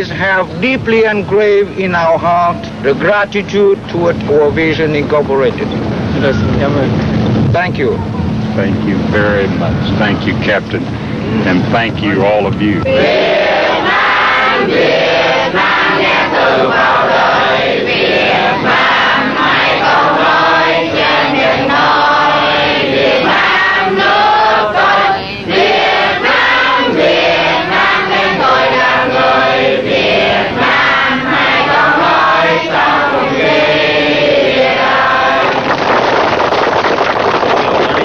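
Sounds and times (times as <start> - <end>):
crowd singing in unison: 12.8 - 36.4
crowd clapping: 35.0 - 38.0.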